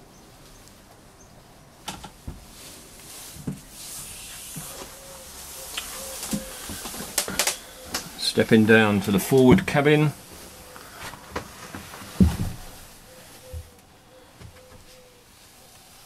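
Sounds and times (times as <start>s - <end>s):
faint hiss: 2.5s - 9.0s
knocks and bumps in boat cabin: 12.2s - 12.8s.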